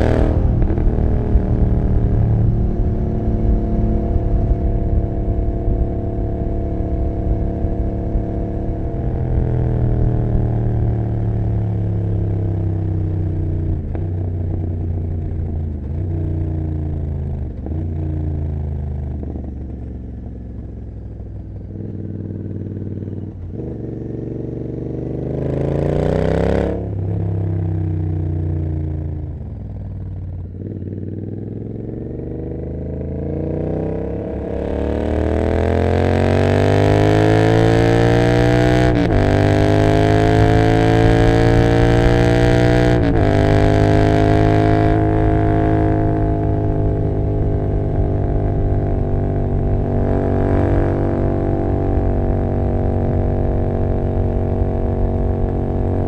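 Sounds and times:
wind rush: 0.0s - 9.1s
motorcycle engine: 0.0s - 56.0s.

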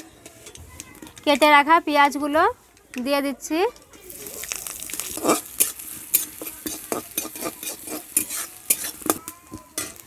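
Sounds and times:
onions sizzling in hot oil: 4.0s - 10.0s
metal spatula scraping pan: 4.9s - 10.0s.

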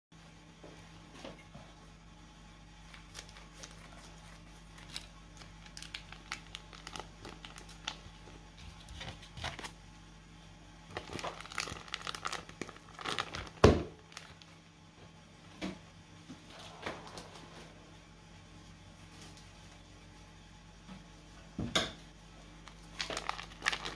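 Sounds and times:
plastic bag crinkling: 2.8s - 9.8s, 10.9s - 14.6s, 22.6s - 23.9s.

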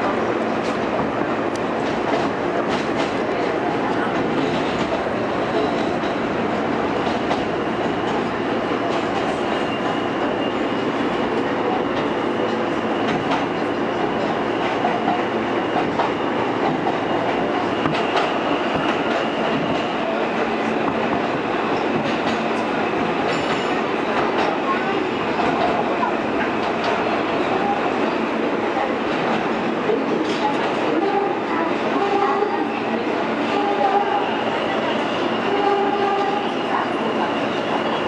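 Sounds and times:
subway wheels rumbling on rail: 0.0s - 38.0s
clacks over rail joints: 11.9s - 20.0s, 20.8s - 24.7s.

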